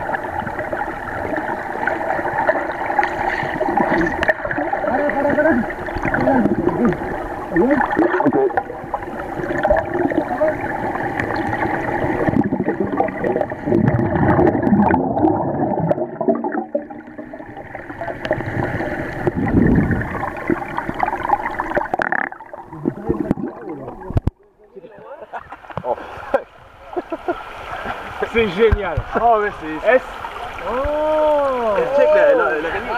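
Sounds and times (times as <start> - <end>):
bubbles gurgling and popping: 0.0 - 24.4
muffled underwater rushing: 0.0 - 24.4.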